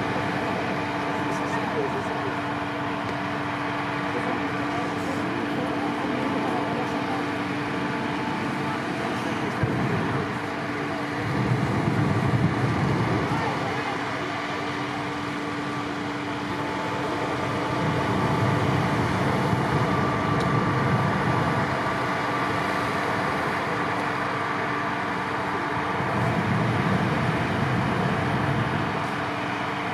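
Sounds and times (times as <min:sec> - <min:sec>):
engine drone: 0:00.0 - 0:29.9
inflator fans running: 0:00.0 - 0:29.9
deep rumbling: 0:25.2 - 0:29.7.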